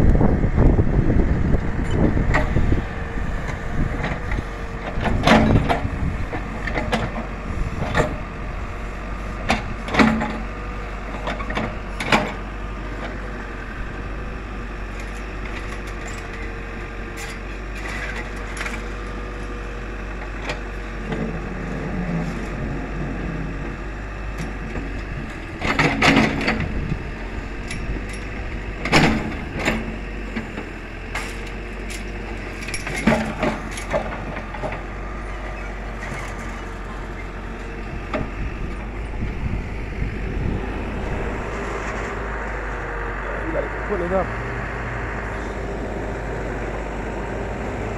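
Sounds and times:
diesel engine running: 0.0 - 47.9
digging knocks and clanks: 3.5 - 8.3, 9.4 - 12.4, 24.2 - 27.0, 27.6 - 39.0.

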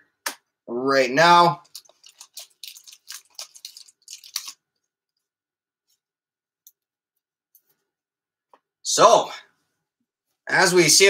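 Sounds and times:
crinkly clicking plastic sleeves: 1.6 - 4.6.

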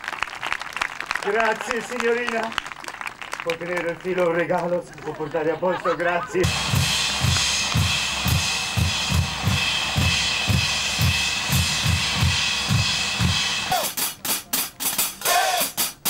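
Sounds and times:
bass drum beats: 6.4 - 16.0
cymbals and snare: 6.4 - 16.0
cymbal strikes: 6.5 - 14.4.

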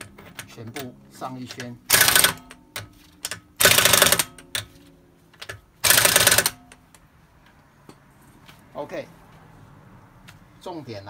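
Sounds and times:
pneumatic impact wrench hammering: 1.9 - 4.7, 5.4 - 6.8.

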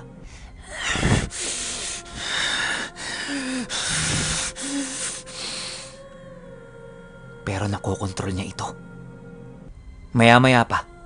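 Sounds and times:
creature's heavy hissing breaths: 0.2 - 6.0.

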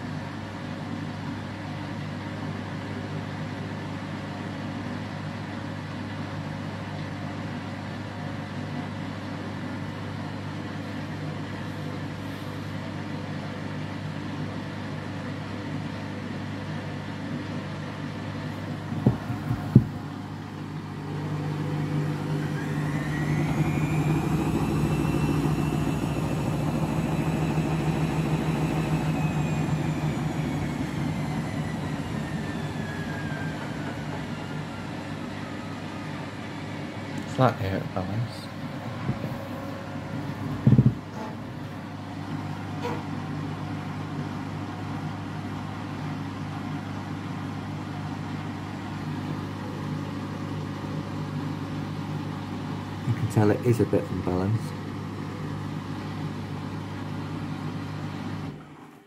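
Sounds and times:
motor whine: 18.4 - 36.8
washing machine drum turning: 18.8 - 20.2
sharp knocks: 19.0 - 20.0.

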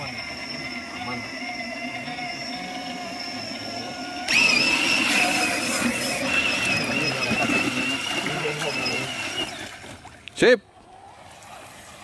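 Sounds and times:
electric motor and gearbox whine: 0.0 - 10.0
water splashing: 4.0 - 12.0.

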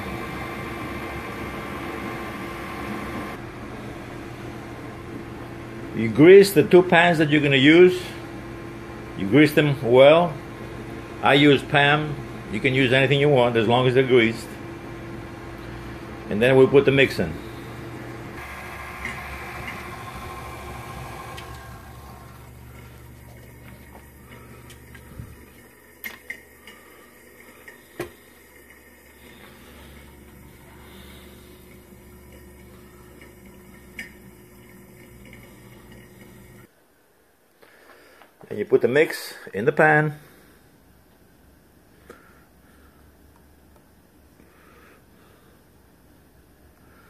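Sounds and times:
stand mixer motor hum: 0.0 - 6.7, 10.2 - 13.3, 14.2 - 36.7.

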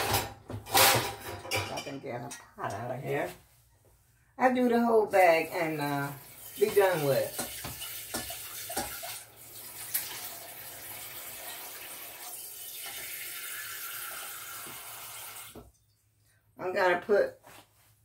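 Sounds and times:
faucet running into a metal pot: 6.1 - 15.7.

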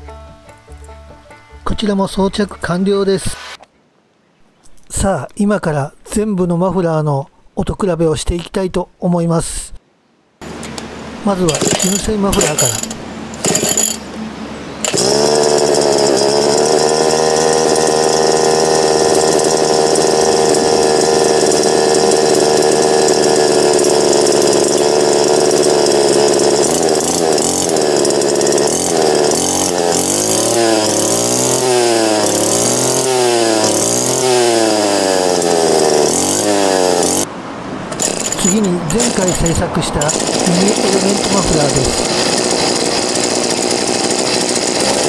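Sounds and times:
brush cutter engine idling and revving: 10.4 - 37.3, 37.9 - 45.0.

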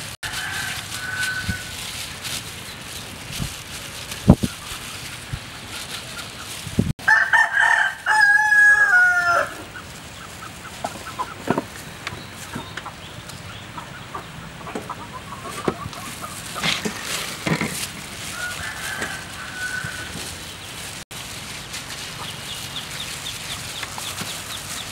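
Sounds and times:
rooster crowing: 0.2 - 1.8, 7.0 - 9.6, 18.2 - 20.3.

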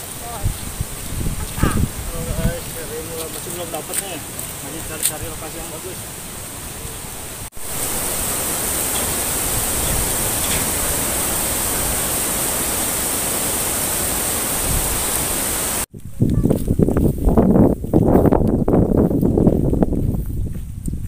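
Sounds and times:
rushing water hiss: 0.0 - 15.9.

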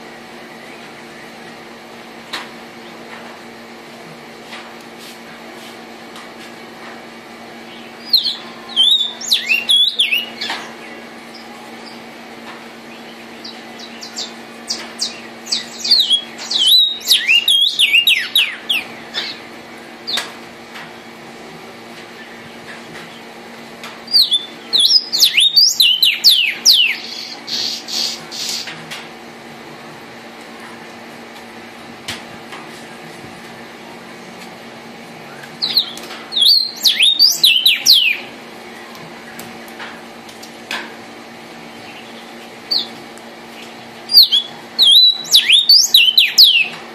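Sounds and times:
steady low hum: 0.0 - 46.9
bird singing whistled notes: 8.0 - 10.4, 15.0 - 18.6, 24.1 - 27.4, 35.6 - 38.2, 44.1 - 46.7.

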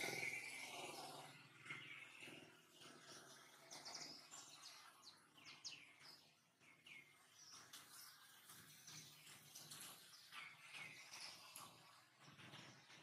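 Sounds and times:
birds chirping: 0.0 - 12.8.

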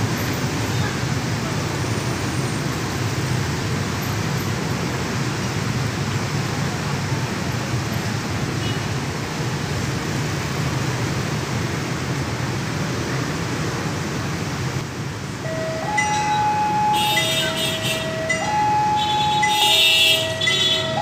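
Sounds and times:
diesel locomotive engine rumble: 12.1 - 21.0.

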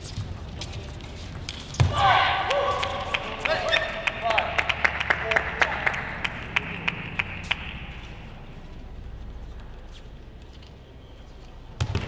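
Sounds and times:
crowd rumble in large hall: 0.0 - 12.0
sharp clap: 2.5 - 8.1.

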